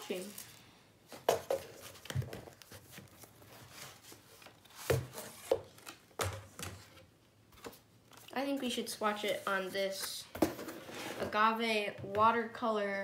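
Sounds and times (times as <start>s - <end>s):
board sliding and rubbing: 10.6s - 11.3s.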